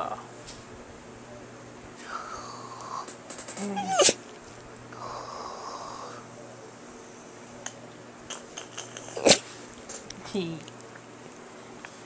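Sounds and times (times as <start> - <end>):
dog squeaky vocal sound: 3.8 - 4.2.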